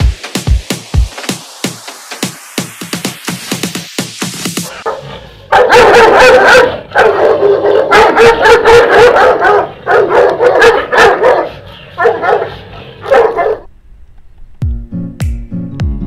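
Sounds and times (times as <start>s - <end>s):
dog barking: 4.7s - 13.7s.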